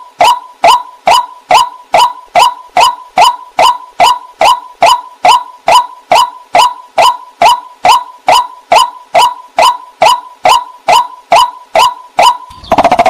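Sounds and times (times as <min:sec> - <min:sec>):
waterhen calling: 0:11.8 - 0:13.0.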